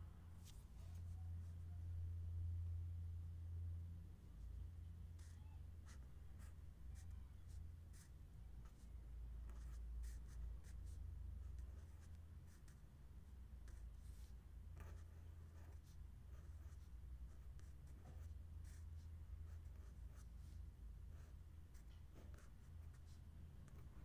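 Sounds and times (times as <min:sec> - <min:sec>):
low steady hum: 0:00.0 - 0:24.0
marker pen writing on paper: 0:07.9 - 0:12.8, 0:13.6 - 0:24.0.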